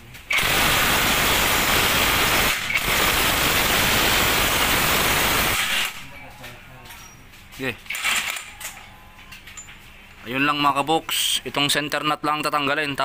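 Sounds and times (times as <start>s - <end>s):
impact wrench hammering: 0.3s - 6.1s.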